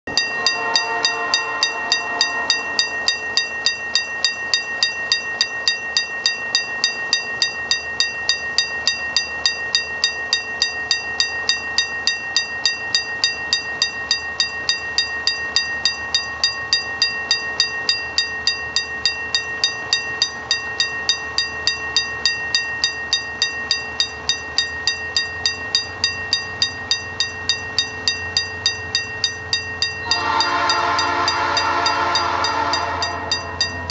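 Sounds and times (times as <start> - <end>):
level crossing warning bell: 0.1 - 33.9
locomotive horn: 0.4 - 2.8, 30.1 - 33.6.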